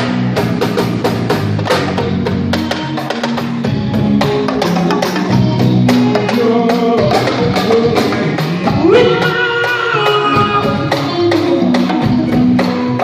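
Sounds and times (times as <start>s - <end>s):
bass guitar: 0.0s - 13.0s
drums struck rapidly: 0.0s - 13.0s
man singing: 6.0s - 12.5s.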